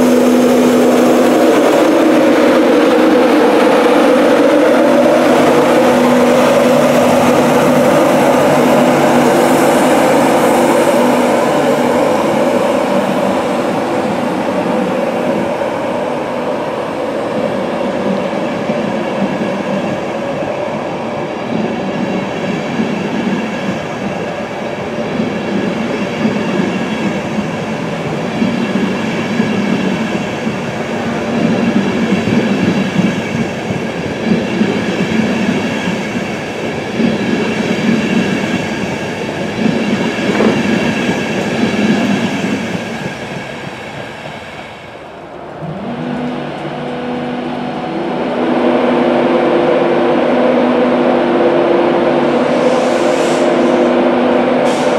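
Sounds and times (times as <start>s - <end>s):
train coaches rumbling past: 0.0s - 54.9s.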